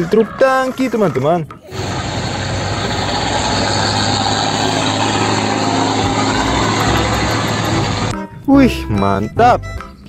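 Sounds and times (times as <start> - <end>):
traffic noise: 1.7 - 8.2
truck engine running: 1.7 - 8.2.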